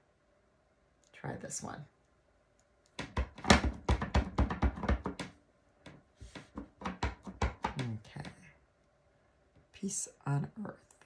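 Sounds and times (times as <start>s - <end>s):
stamp tapping on ink pad: 3.0s - 5.3s, 6.3s - 7.8s.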